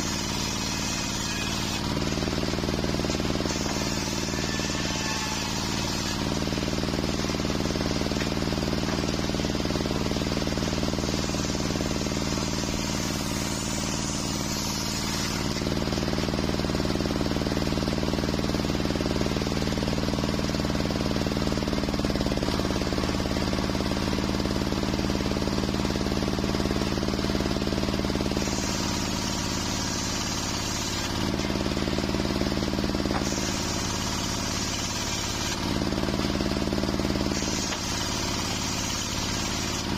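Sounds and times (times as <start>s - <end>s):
circular saw cutting wood: 0.0s - 39.9s.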